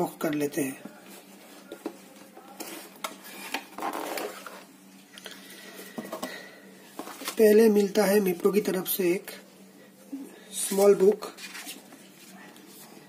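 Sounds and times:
box lid scraping rustle: 0:03.2 - 0:04.7.

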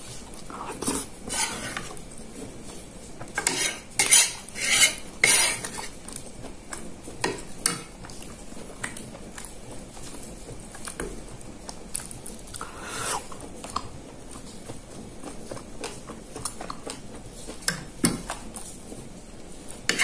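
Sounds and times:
metal spoon scraping ceramic plate: 0:00.6 - 0:01.9, 0:03.4 - 0:06.0.

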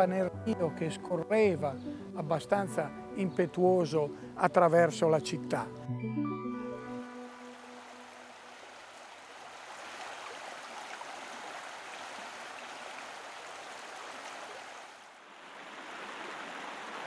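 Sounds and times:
canal water flowing: 0:06.9 - 0:17.0.

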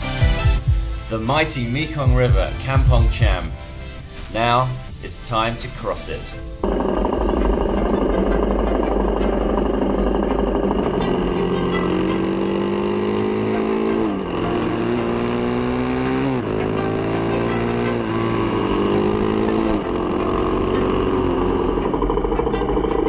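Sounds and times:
motorcycle engine shifting gears: 0:06.0 - 0:23.0.

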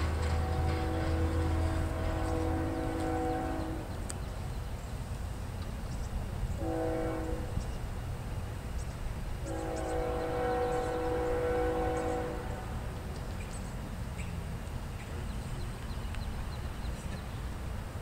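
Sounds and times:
locomotive air horn blasts: 0:00.0 - 0:04.0, 0:06.6 - 0:07.6, 0:09.4 - 0:12.8.

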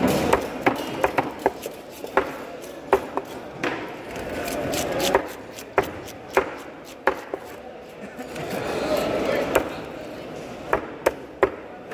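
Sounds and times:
knife chopping on cutting board: 0:00.0 - 0:07.6.

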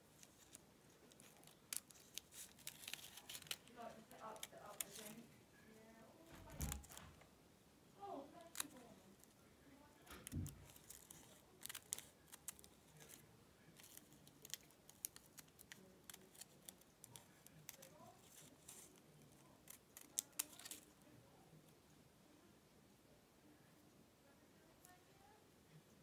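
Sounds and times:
backing paper peeling and crinkling: 0:00.1 - 0:05.3, 0:06.3 - 0:07.2, 0:08.4 - 0:09.3, 0:10.1 - 0:20.9.

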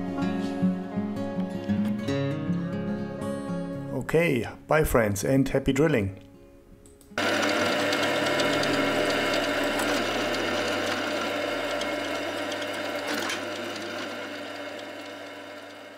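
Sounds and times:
drill press drilling metal: 0:07.2 - 0:15.9.

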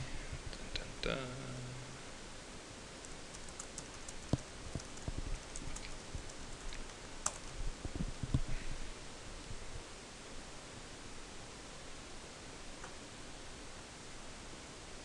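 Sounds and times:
keyboard keystrokes: 0:03.0 - 0:07.5.

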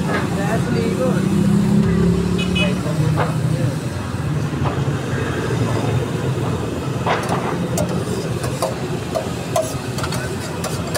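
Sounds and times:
metal spatula scraping a griddle: 0:07.1 - 0:10.9.

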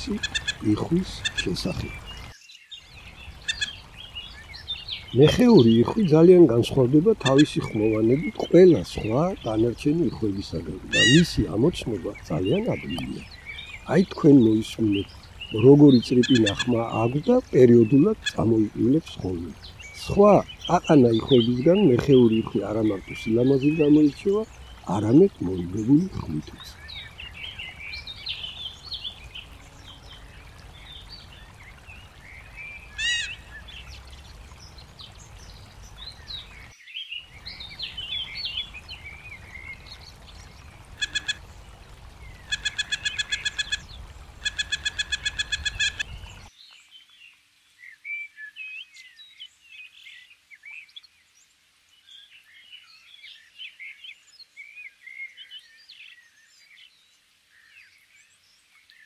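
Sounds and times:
fast sharp repeated bird calls: 0:00.0 - 0:02.2, 0:03.4 - 0:03.8, 0:07.1 - 0:08.4, 0:10.8 - 0:11.4, 0:15.0 - 0:17.3, 0:18.1 - 0:18.5, 0:40.9 - 0:41.5, 0:42.4 - 0:46.4
creek water rushing over rocks: 0:00.0 - 0:46.5
small birds chirping: 0:00.0 - 0:59.0.

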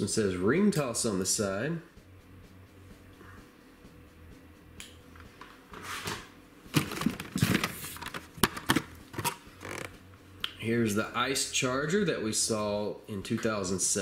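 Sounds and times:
plastic and card rustling: 0:05.8 - 0:09.9.

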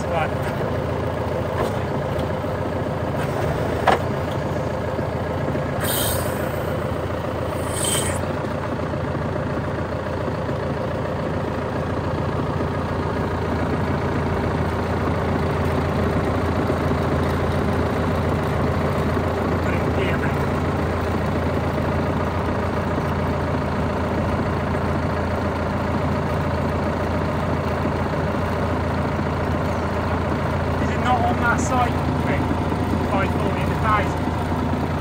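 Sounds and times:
tractor diesel engine idling: 0:00.0 - 0:35.0
short hiss: 0:05.8 - 0:06.7, 0:07.5 - 0:08.2.

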